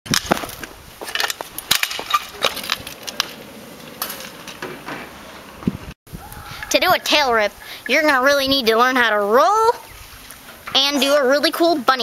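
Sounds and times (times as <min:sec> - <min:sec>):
kick scooter clattering on pavement: 0:00.1 - 0:05.7.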